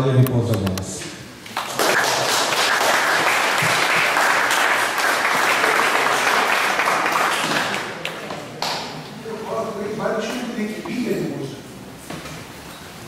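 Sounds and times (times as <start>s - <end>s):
audience applauding: 1.6s - 8.8s.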